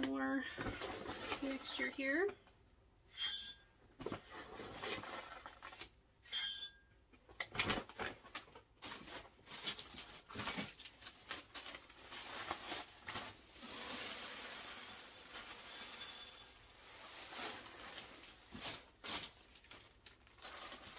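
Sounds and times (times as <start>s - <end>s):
hands rustling potting mix: 11.2s - 19.8s.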